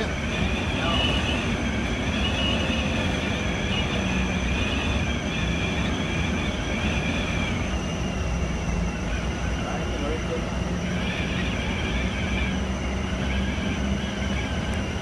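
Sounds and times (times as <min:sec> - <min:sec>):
bus engine and tyre rumble: 0:00.0 - 0:15.0
high wavering whine: 0:00.0 - 0:15.0.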